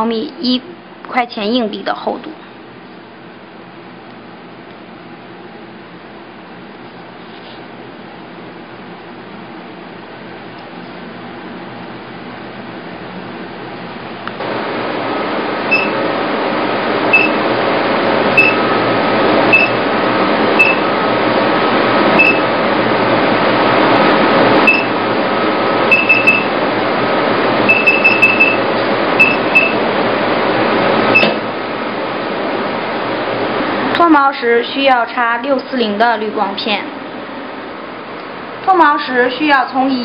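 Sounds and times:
fan-like rush: 0:11.1 - 0:40.0
short high beeps: 0:15.7 - 0:16.0, 0:17.2 - 0:17.4, 0:18.4 - 0:18.6, 0:19.5 - 0:19.8, 0:20.6 - 0:20.8, 0:22.2 - 0:22.5, 0:24.7 - 0:24.9, 0:25.9 - 0:26.5, 0:27.7 - 0:28.6, 0:29.2 - 0:29.8.

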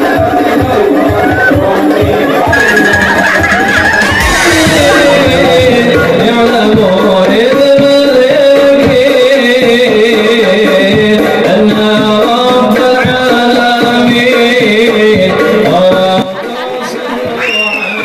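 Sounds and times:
group singing: 0:00.0 - 0:10.0
frame drums: 0:00.0 - 0:17.4.

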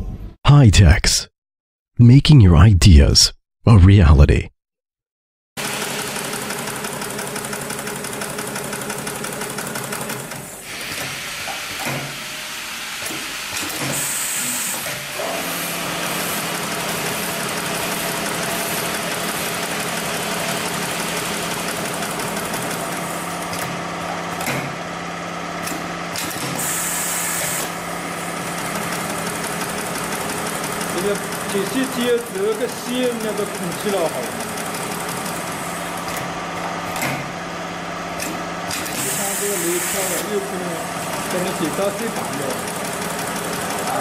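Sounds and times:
sewing machine running and rattling: 0:05.6 - 0:11.0, 0:15.9 - 0:23.9, 0:28.2 - 0:36.1, 0:38.7 - 0:44.0.

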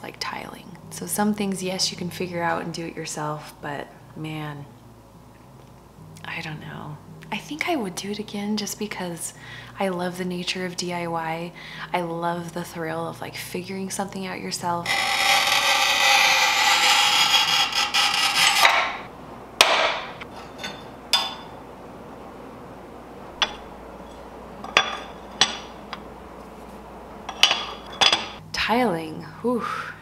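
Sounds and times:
tile cutter wheel scraping tile: 0:14.8 - 0:19.1.

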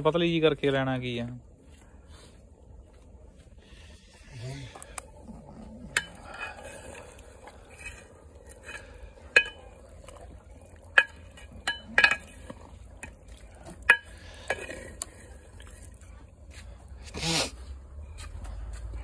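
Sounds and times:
metal ladle scraping pot: 0:05.0 - 0:16.1
ladle clanking against pot: 0:05.9 - 0:07.0, 0:07.7 - 0:15.1.

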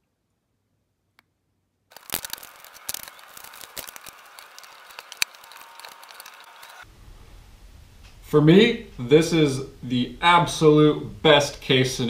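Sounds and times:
tape crinkling and snapping: 0:01.9 - 0:06.8
tape tearing and peeling: 0:01.9 - 0:06.8.

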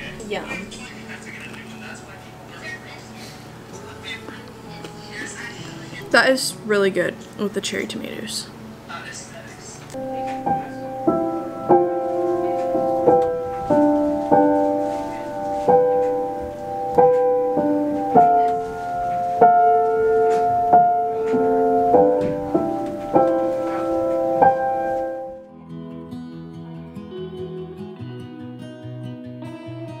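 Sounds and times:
grand piano played slowly: 0:09.9 - 0:26.0.

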